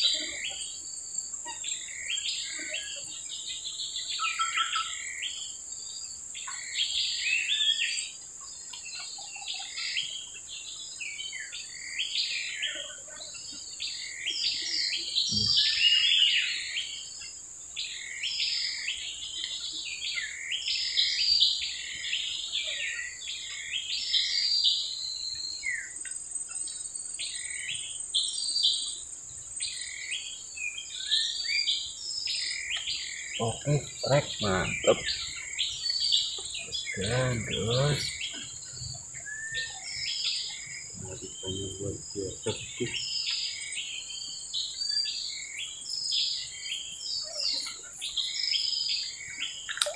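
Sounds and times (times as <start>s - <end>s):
birds chirping: 0.0s - 49.9s
insects droning: 0.0s - 49.9s.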